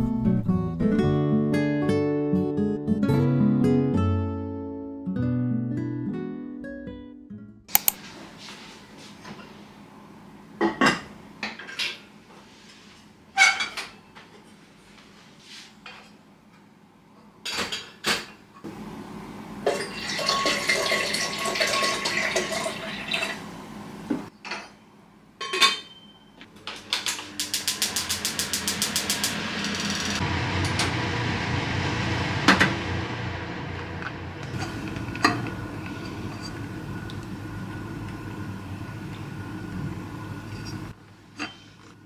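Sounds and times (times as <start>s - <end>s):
gas igniter clicking: 7.7s - 8.0s
water pouring into kettle: 19.6s - 23.5s
pots and pans clanking: 19.7s - 23.3s, 25.4s - 26.2s, 34.5s - 36.6s
gas flame rushing: 27.3s - 41.0s.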